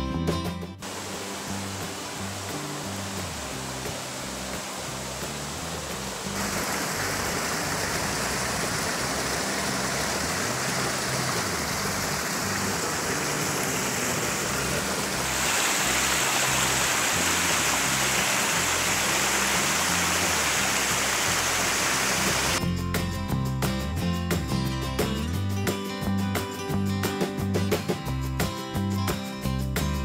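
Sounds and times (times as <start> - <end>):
waterfall rushing over rock: 0.8 - 22.6.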